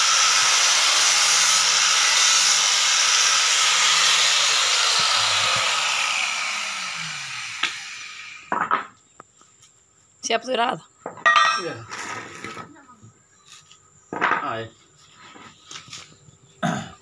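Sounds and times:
angle grinder running: 0.0 - 8.5.

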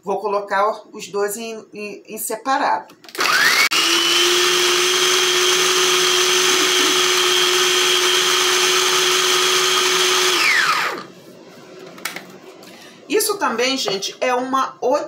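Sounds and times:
food processor whining: 3.1 - 11.1.

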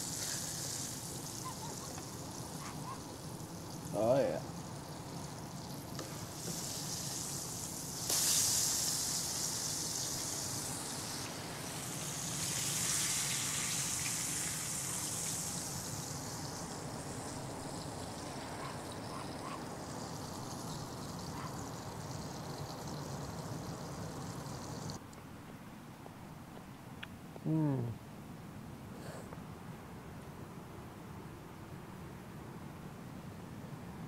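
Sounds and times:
fish frying in oil: 0.0 - 25.0.

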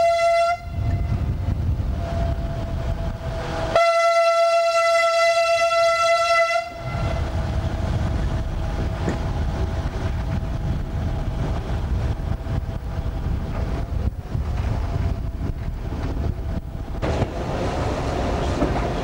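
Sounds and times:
train horn: 0.0 - 1.3, 1.9 - 2.7, 3.4 - 7.4
train rumbling on tracks: 0.0 - 19.0.

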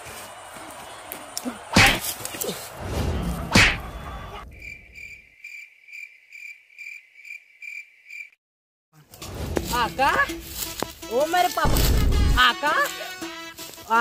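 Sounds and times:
cricket chirping sound effect: 4.4 - 8.4.

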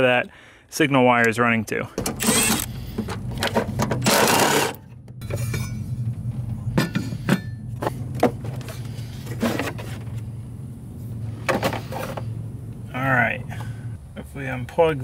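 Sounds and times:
cordless drill spinning: 2.2 - 2.9.

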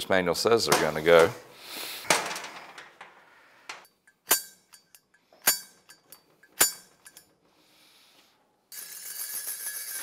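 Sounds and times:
steel tool clinking on metal: 3.9 - 7.3.

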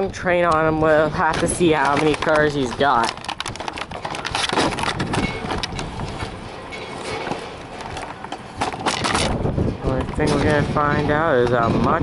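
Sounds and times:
microphone handling rustle: 0.6 - 6.4.

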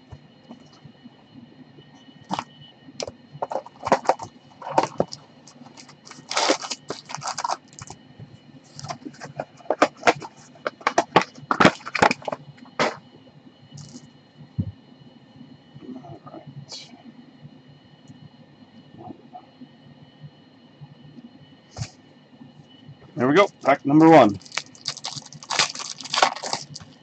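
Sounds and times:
crinkling foil wrappers: 3.4 - 8.0, 8.7 - 12.4, 24.0 - 27.0
cardboard box tearing: 6.1 - 7.6, 24.9 - 26.8.

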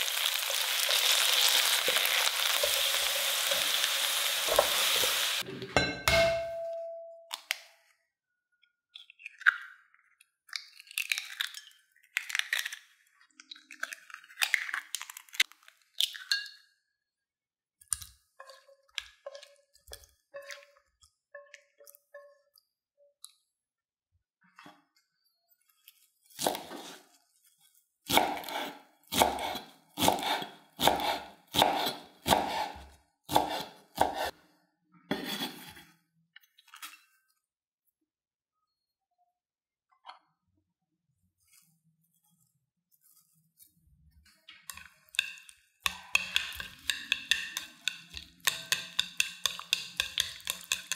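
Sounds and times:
eggshells cracking and crunching: 9.0 - 16.3
knife chopping on cutting board: 28.1 - 34.3.

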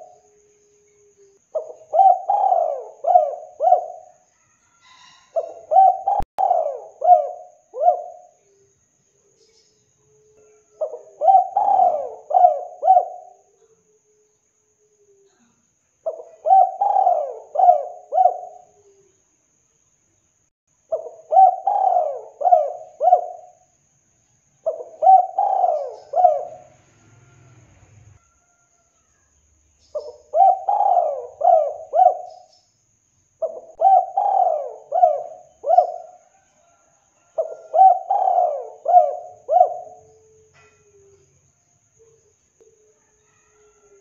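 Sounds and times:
dove cooing: 0.0 - 4.2, 4.8 - 8.7, 10.1 - 14.2, 16.0 - 19.1, 20.9 - 23.7, 24.6 - 26.8, 29.9 - 32.5, 33.4 - 41.2.

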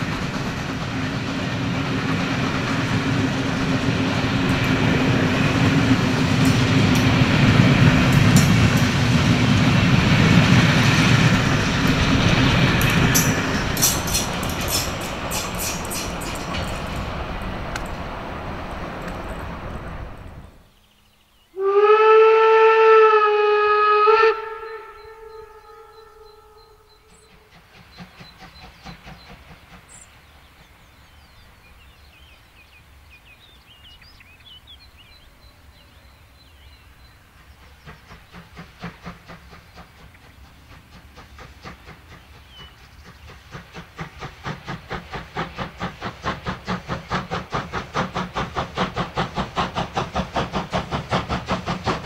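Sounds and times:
locomotive exhaust beats: 0.0 - 20.7, 37.3 - 52.0
running train noise: 0.0 - 52.0
birds chirping: 1.9 - 21.6, 24.5 - 46.0
steam locomotive whistle: 21.6 - 27.3.

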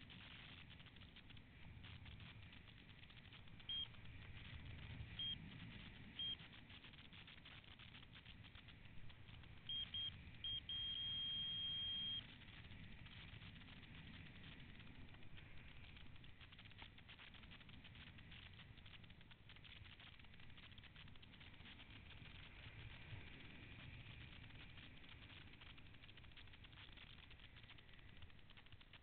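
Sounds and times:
altimeter beeps: 3.6 - 4.1, 5.1 - 6.5, 9.6 - 13.3.

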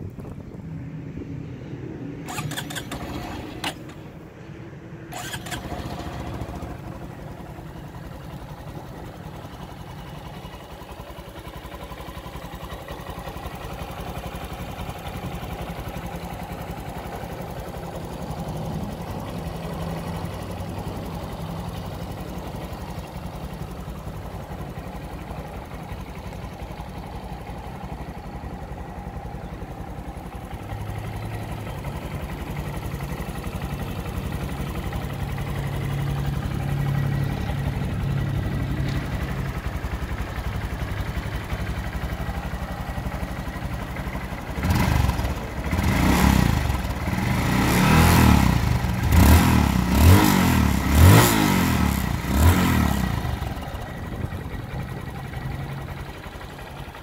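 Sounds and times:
motorcycle engine idling: 1.8 - 57.0
engine revving: 2.2 - 4.1, 5.1 - 6.8, 44.6 - 53.7.

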